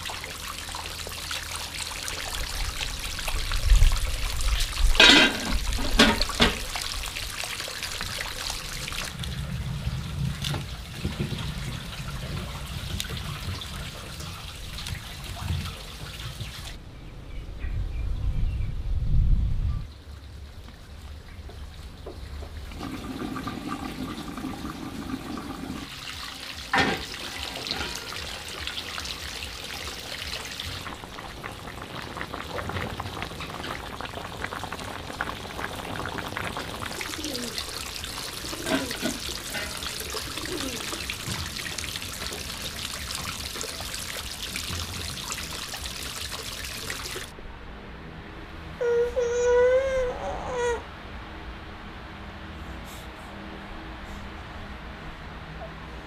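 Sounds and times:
broth bubbling: 20.9 - 47.3.

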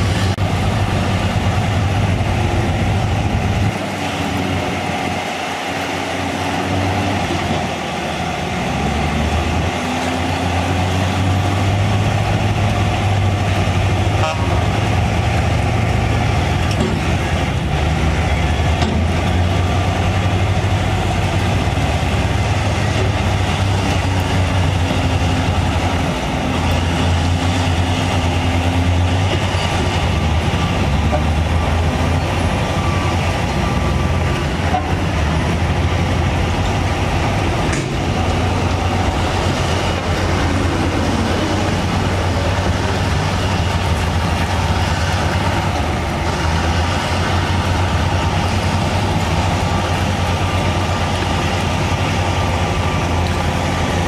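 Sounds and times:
heavy diesel machinery drone: 0.0 - 54.0.

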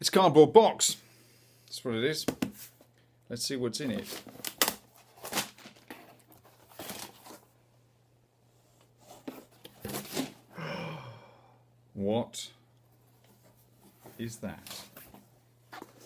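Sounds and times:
cardboard and tape tearing: 4.0 - 7.4.

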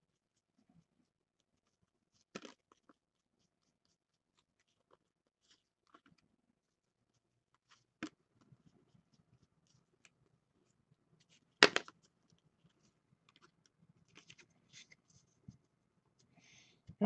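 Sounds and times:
cards sliding and rustling: 12.8 - 15.4.

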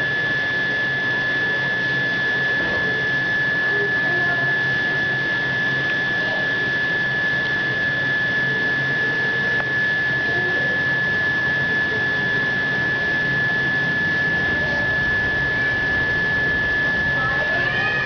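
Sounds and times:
high-pitched whine: 0.0 - 18.0
low hum: 7.4 - 18.0.

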